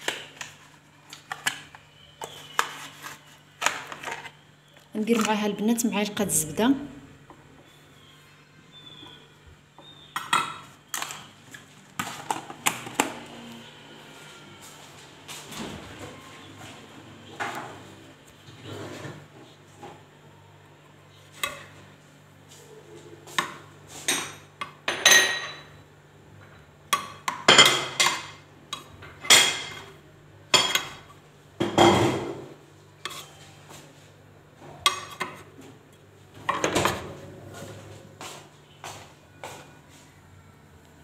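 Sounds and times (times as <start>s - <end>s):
metal spoon scraping saucepan: 33.0s - 33.5s.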